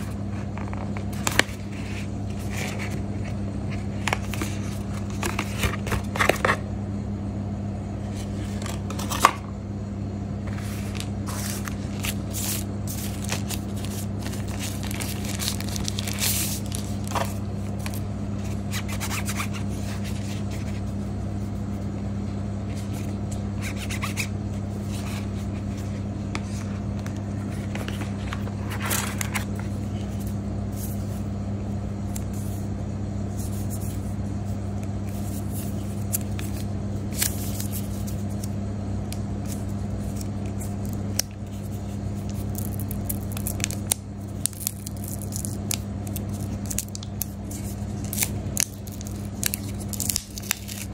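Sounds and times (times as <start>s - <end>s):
steady low hum: 0.0s - 50.9s
packaging rustling: 0.4s - 6.6s, 10.5s - 20.8s, 26.4s - 31.1s, 39.5s - 50.9s.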